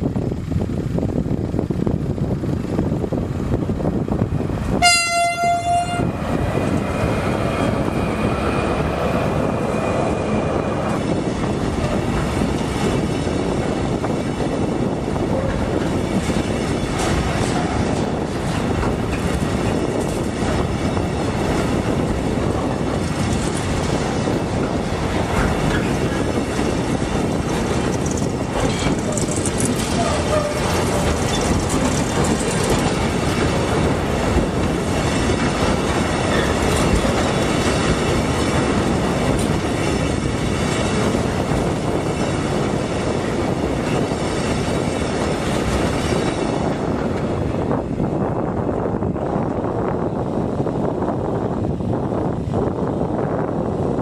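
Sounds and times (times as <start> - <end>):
freight train wheels rumbling: 0.0 - 54.0
train horn blast: 4.8 - 6.2
wheels clicking over rail joints: 10.8 - 47.7.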